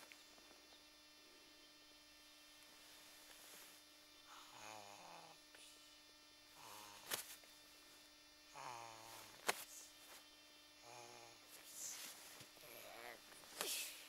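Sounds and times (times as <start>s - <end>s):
faint electrical hum: 0.0s - 14.0s
low wordless vocal sounds: 10.8s - 11.9s.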